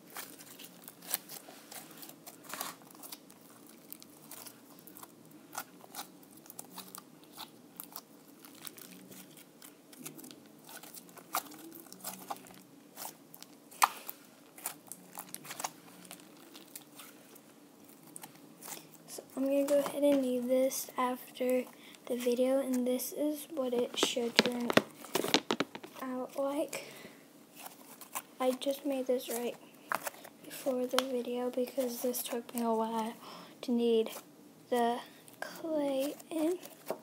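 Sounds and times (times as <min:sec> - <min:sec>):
slime squishing and popping: 0:23.8 - 0:26.0.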